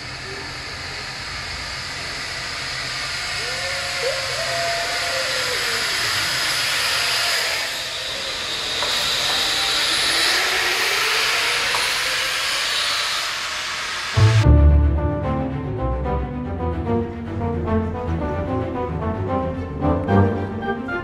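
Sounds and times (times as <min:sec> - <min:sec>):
zip-line trolleys hissing on cables: 0:00.0 - 0:14.2
loud music: 0:14.2 - 0:21.0.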